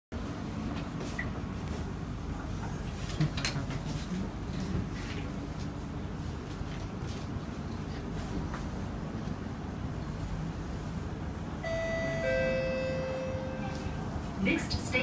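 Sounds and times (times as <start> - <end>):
low hum of train carriage: 0.1 - 15.0.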